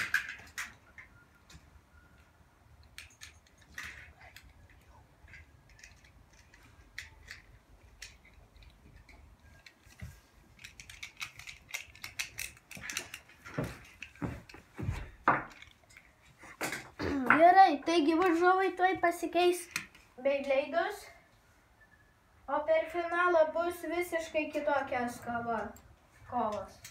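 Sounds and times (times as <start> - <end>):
plastic spinning tops clicking: 2.8 - 9.9, 10.5 - 13.3.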